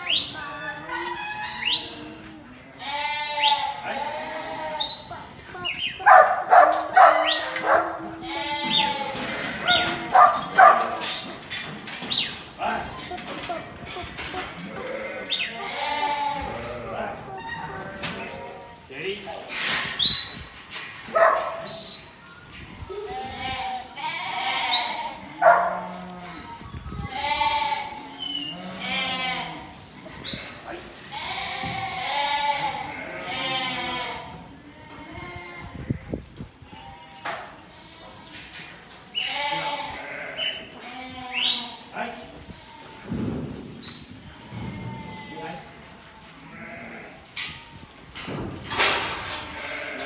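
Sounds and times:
sheep bleating: 1.8s - 5.1s, 6.5s - 10.8s, 14.4s - 18.7s, 22.9s - 30.4s, 31.1s - 36.1s, 39.2s - 41.8s, 46.4s - 47.8s, 49.4s - 50.0s
dog barking: 6.0s - 8.0s, 9.7s - 11.0s, 21.1s - 21.7s, 25.4s - 25.9s.

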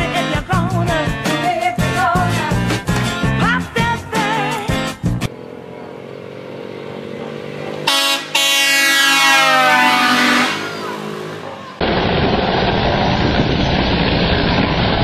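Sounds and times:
motor scooter engine: 5.3s - 8.5s
air horn blasting: 7.8s - 11.5s.

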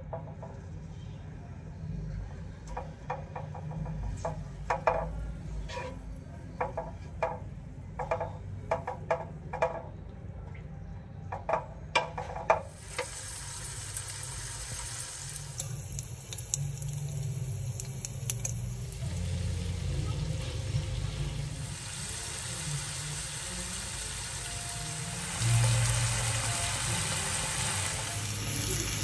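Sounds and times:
wooden spatula knocking in pan: 2.8s - 5.2s, 6.6s - 9.9s, 11.3s - 12.7s
low steady hum: 3.7s - 29.0s
meat sizzling in oil: 12.8s - 29.0s.

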